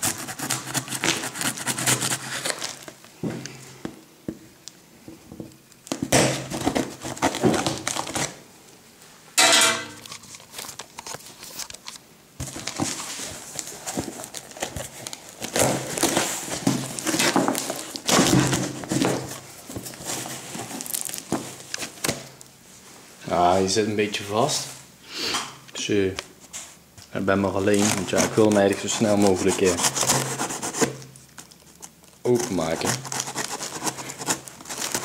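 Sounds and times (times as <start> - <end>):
cardboard and tape scraping: 0.0 - 3.0, 5.9 - 8.4, 10.0 - 22.2, 27.6 - 35.0.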